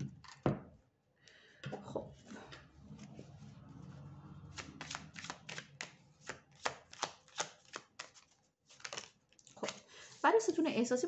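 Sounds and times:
cards being shuffled: 0:04.5 - 0:09.8.

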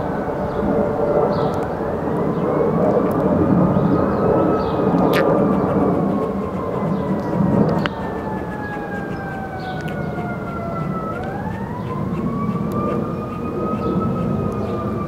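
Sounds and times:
siren wailing: 0:00.0 - 0:15.0.

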